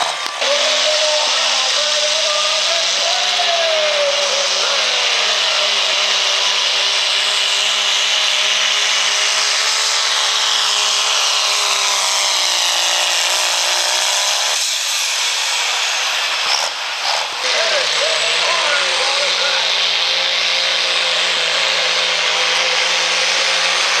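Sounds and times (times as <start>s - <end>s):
diesel engine at full throttle: 0.0s - 24.0s
turbo whine: 16.0s - 24.0s.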